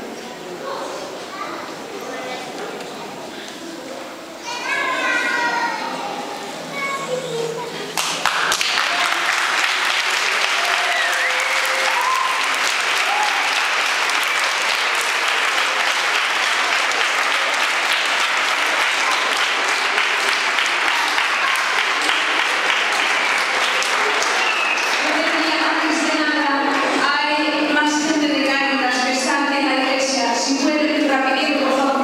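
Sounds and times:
faint voices: 0.0s - 32.0s
crowd applause in a church: 8.0s - 27.0s.

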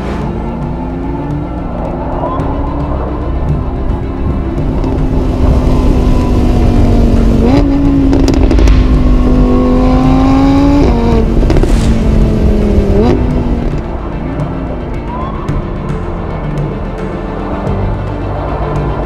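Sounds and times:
sports car engine accelerating: 0.0s - 15.1s.

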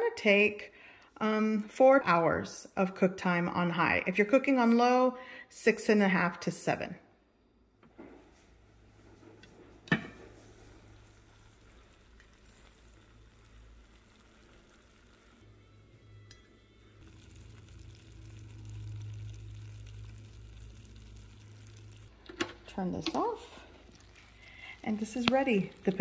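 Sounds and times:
slow cooker simmering hiss: 8.9s - 26.0s
low hum: 11.2s - 26.0s.

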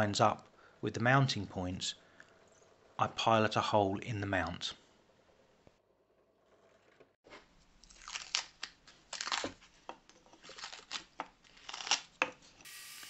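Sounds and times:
tape crumpled by hand: 7.8s - 9.7s, 10.4s - 12.2s
masking tape peeling: 10.5s - 12.2s.

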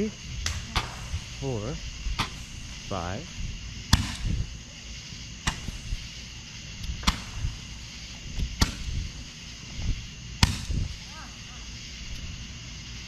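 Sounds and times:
firework shots popping: 0.0s - 12.5s.

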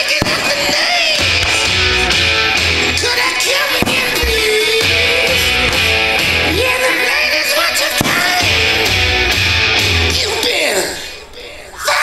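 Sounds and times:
firework shells bursting: 0.0s - 9.3s
rock song with singing: 0.0s - 12.0s.

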